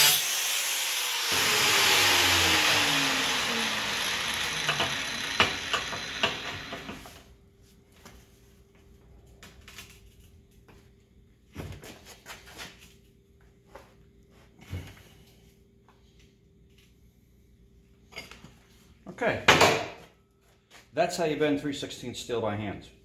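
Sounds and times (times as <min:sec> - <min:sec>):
angle grinder spinning down: 0:00.0 - 0:07.2.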